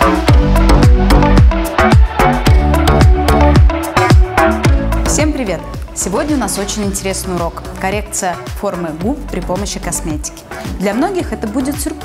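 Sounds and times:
electronic dance music: 0.0 - 9.2
deep kick drum: 0.3 - 5.9.

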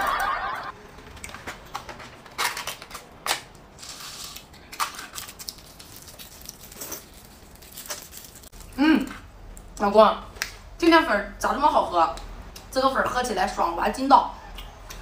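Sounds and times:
food packet crinkling: 1.2 - 8.7.

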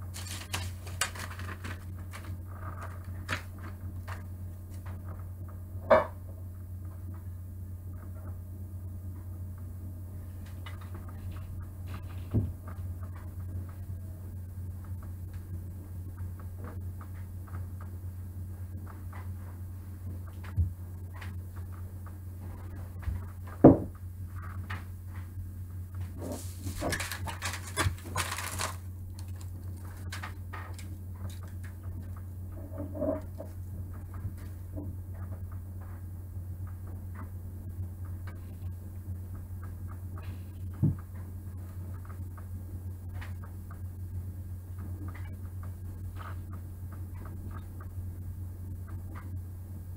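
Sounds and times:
steady low hum: 0.0 - 49.9
wooden figure thump: 23.6 - 23.9.

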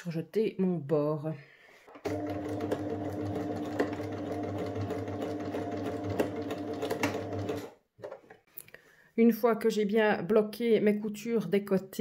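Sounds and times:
sewing machine stitching: 2.0 - 7.8.

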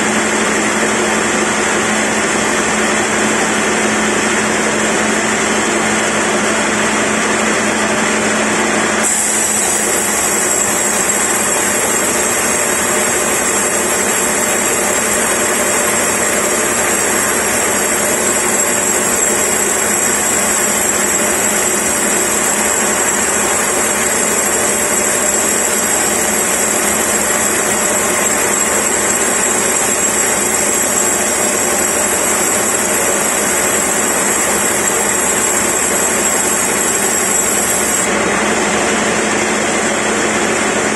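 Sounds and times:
band saw cutting log: 8.9 - 38.1.

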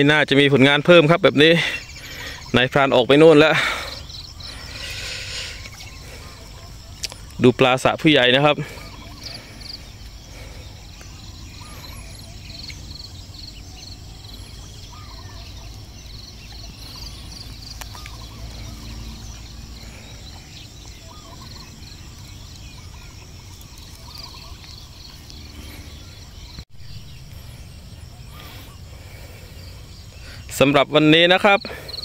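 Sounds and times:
bird calls: 0.0 - 32.0
insects chirring: 0.0 - 32.0
low rumble: 9.3 - 30.2.

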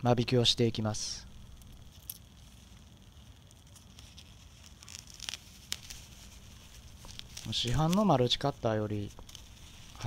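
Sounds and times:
gloved hands handling plant pot: 3.6 - 10.0.

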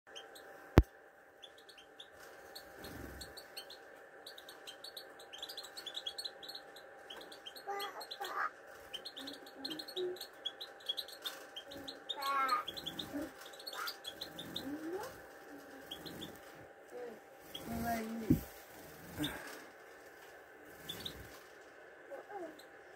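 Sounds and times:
finches twittering: 1.4 - 19.6, 20.7 - 21.4
warbling bird phrases: 7.2 - 16.4, 22.1 - 22.9.

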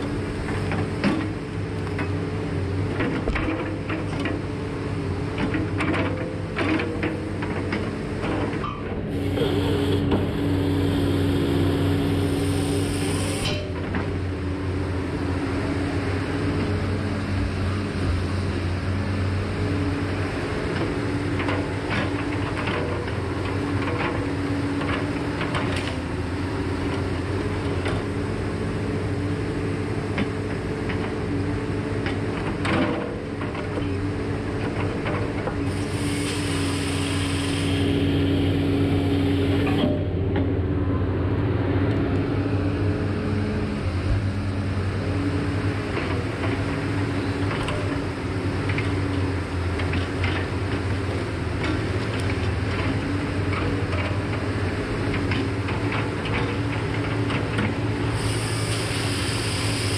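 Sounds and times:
diesel engine and hydraulics: 0.0 - 59.9
saw cutting with hissing whine: 9.1 - 13.5, 58.2 - 59.9.

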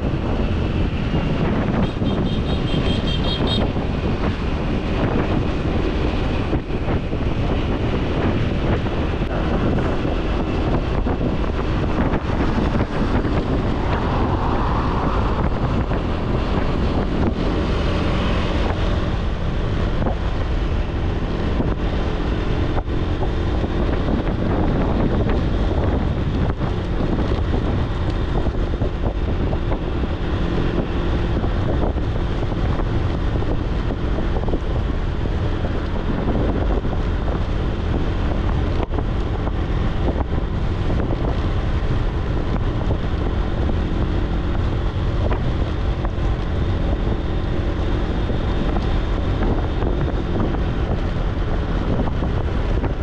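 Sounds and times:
motorbike engine hum: 0.0 - 53.0
wind buffeting microphone: 0.0 - 53.0.

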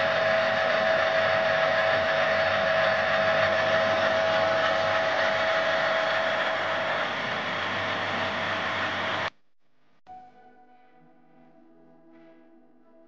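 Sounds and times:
metal lathe whine: 0.0 - 9.3.

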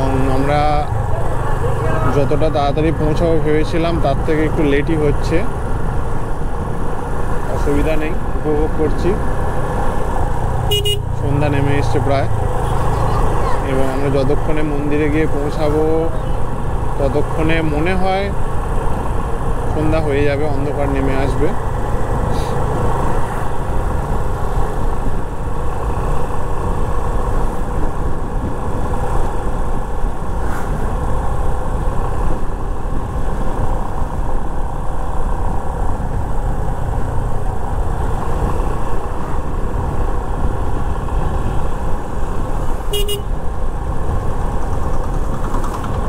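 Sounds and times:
wind rushing over microphone: 0.0 - 46.0
horn toot: 10.7 - 11.1, 42.9 - 43.3.

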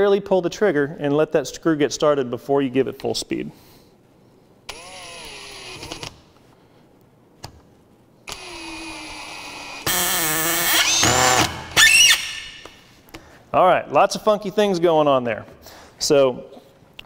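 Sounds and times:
cordless drill driving screw: 4.7 - 6.1, 8.3 - 12.4
drill bit slipping whine: 8.3 - 12.5.

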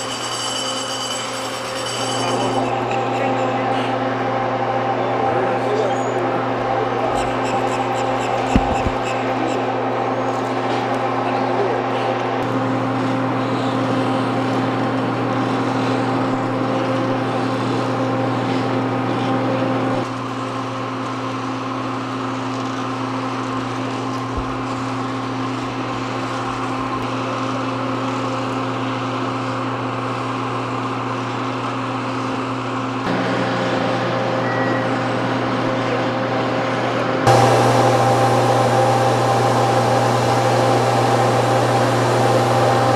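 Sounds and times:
machinery drone: 0.0 - 20.1, 33.0 - 42.9.

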